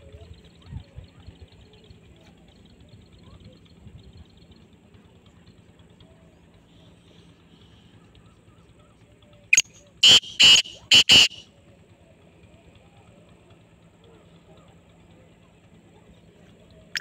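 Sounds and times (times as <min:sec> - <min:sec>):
francolin calling harsh notes: 0:09.6 - 0:11.4.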